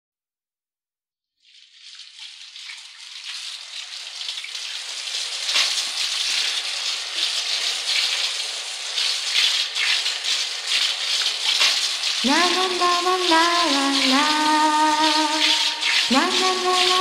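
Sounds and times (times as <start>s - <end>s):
rushing water-like hiss: 4.6s - 17.0s.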